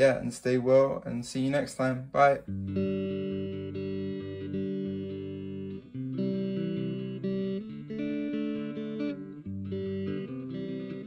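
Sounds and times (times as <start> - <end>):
background music held chords: 2.4 - 11.0.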